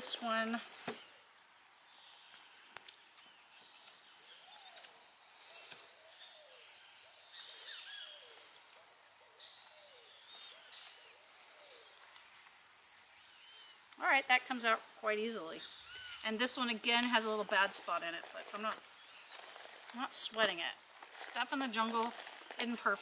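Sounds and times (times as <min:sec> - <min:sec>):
faint click: 0:02.3 - 0:04.0.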